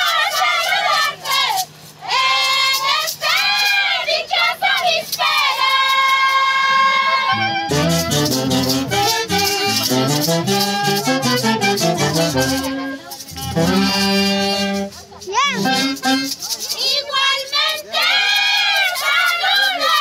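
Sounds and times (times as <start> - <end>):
women singing in high voices: 0.0 - 20.0
instruments playing quick tune: 7.3 - 16.7.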